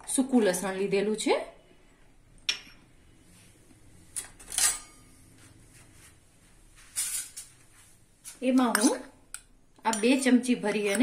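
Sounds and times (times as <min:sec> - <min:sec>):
kitchen utensils clinking: 0:04.2 - 0:05.1, 0:07.0 - 0:07.6, 0:08.3 - 0:09.1, 0:09.9 - 0:11.0.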